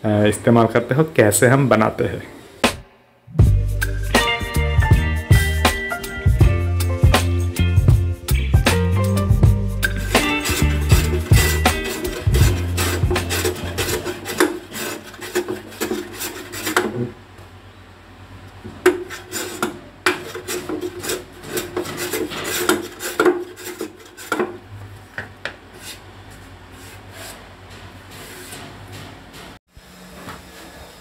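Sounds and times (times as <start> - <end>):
hand plane shaving wood: 9.9 - 17.1, 18.9 - 24.5.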